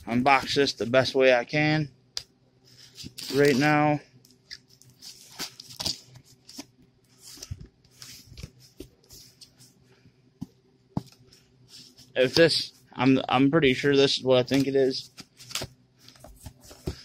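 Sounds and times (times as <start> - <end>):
cardboard rustling: 2.8 - 3.8, 14.5 - 17.0.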